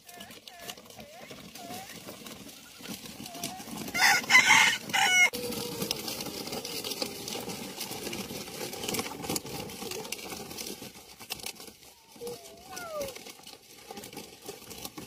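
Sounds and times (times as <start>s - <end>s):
toy truck wheels on gravel: 0.0s - 15.0s
rooster crowing: 3.9s - 5.8s.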